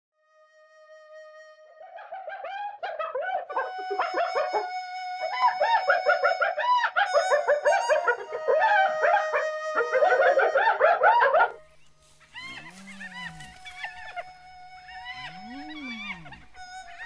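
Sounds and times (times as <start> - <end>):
held music tone: 3.5 - 17.0
hyena giggling calls: 5.3 - 11.6, 12.3 - 17.0.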